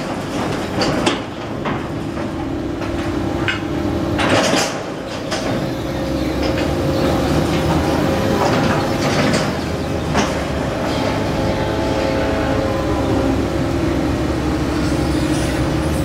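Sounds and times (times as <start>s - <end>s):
metal clanks and rattles: 0.0s - 11.2s
crane machinery humming: 0.0s - 16.0s.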